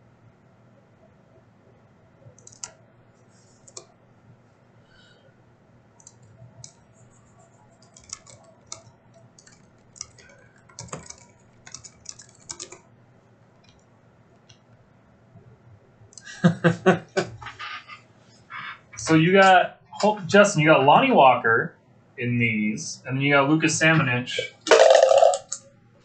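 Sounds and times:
keyboard typing: 0:02.2 - 0:03.9, 0:06.0 - 0:12.9.

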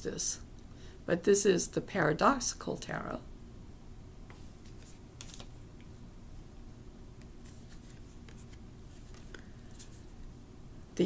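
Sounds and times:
cards rustling and sliding: 0:04.3 - 0:05.6, 0:07.2 - 0:10.2.

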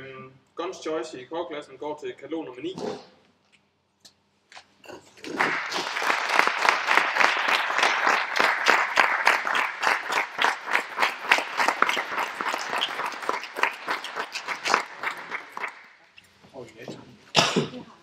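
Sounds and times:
crowd applauding: 0:05.1 - 0:16.0.

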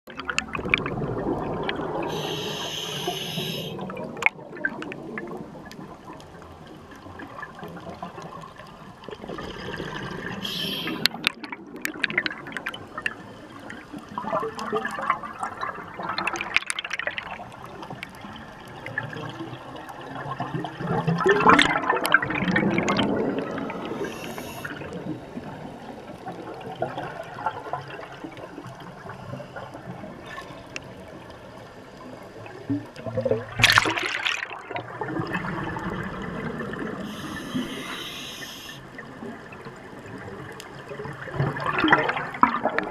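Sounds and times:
underwater bubbles gurgling: 0:00.1 - 0:42.9
short high hiss: 0:02.1 - 0:03.8, 0:10.4 - 0:11.1, 0:24.0 - 0:24.7, 0:37.1 - 0:38.8.

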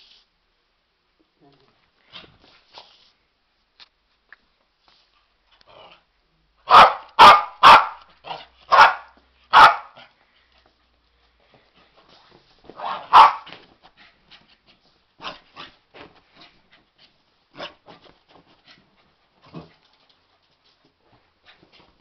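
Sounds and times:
dog barking: 0:06.6 - 0:10.1, 0:12.8 - 0:13.5.

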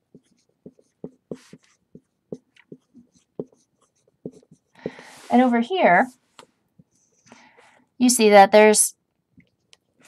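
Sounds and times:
marker writing on whiteboard: 0:00.0 - 0:05.6, 0:06.4 - 0:07.3.

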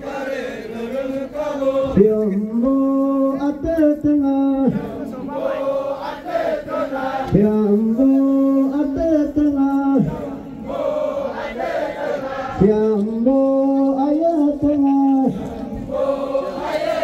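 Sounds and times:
group chanting in held notes: 0:00.0 - 0:02.0, 0:04.7 - 0:07.4, 0:10.0 - 0:12.6, 0:15.3 - 0:17.0.

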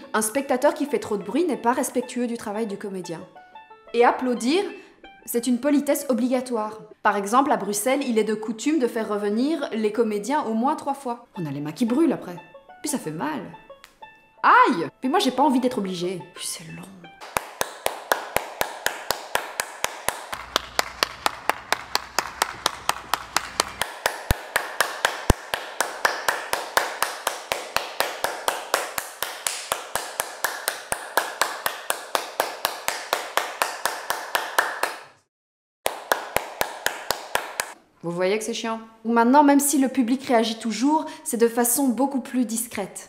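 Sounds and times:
woman clapping: 0:17.2 - 0:35.1, 0:35.9 - 0:37.8.

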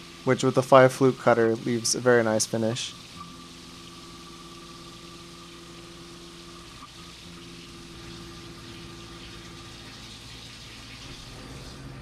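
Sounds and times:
coolant hissing and splashing: 0:00.0 - 0:12.0
milling machine spindle hum: 0:00.0 - 0:12.0.

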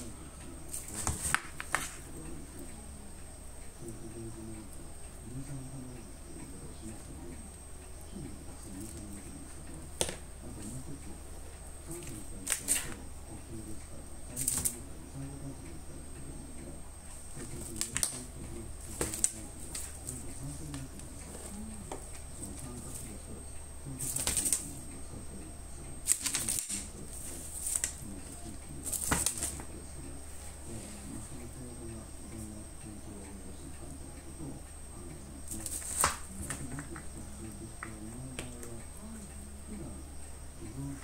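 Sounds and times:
cat claws raking cardboard: 0:00.7 - 0:02.0, 0:28.8 - 0:29.6, 0:35.5 - 0:36.3
cat claws scratching cardboard: 0:00.7 - 0:02.1, 0:17.3 - 0:20.3, 0:26.0 - 0:28.0, 0:28.8 - 0:29.7, 0:35.5 - 0:37.0.

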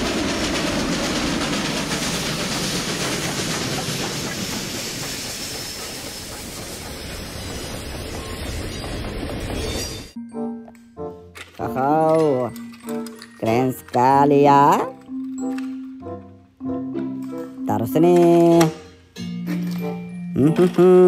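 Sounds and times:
freight cars rolling on rails: 0:00.0 - 0:10.2
steam locomotive passing: 0:00.0 - 0:10.2.

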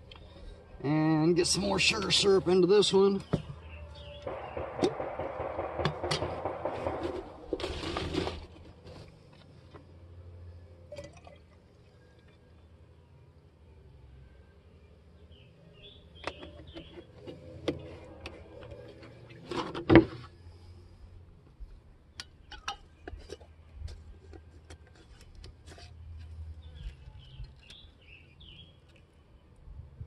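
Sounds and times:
bird chirps: 0:03.2 - 0:04.8, 0:15.3 - 0:17.1, 0:26.6 - 0:28.8.

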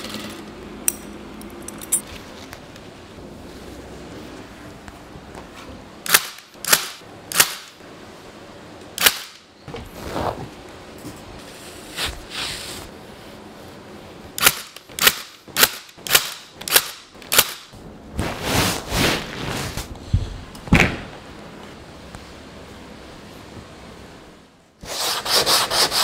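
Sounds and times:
stapler firing shots: 0:09.0 - 0:09.4, 0:14.4 - 0:17.7
fabric rustling: 0:18.2 - 0:19.9.

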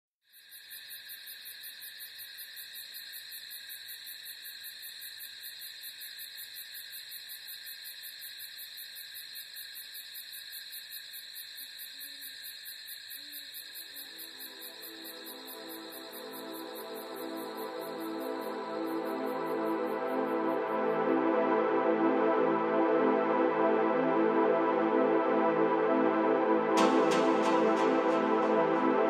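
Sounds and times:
crickets trilling: 0:00.3 - 0:21.1.

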